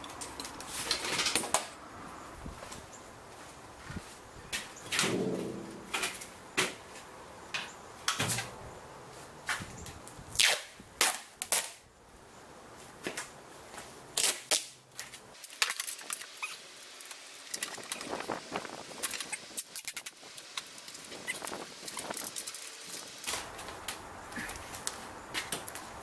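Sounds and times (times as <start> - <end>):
duct tape ripping off roll: 10.3 - 11.8, 14.2 - 14.8.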